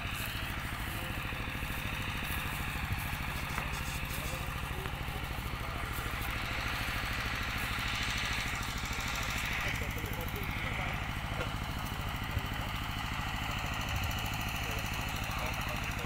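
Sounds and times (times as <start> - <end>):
small engine idling: 0.0 - 16.0.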